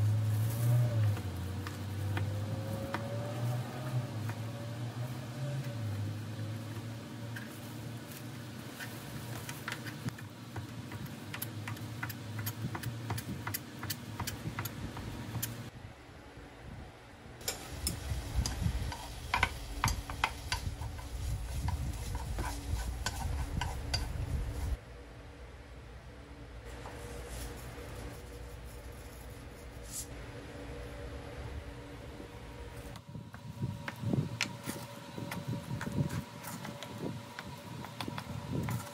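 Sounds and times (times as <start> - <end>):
spatula scraping frying pan: 17.5 - 24.8.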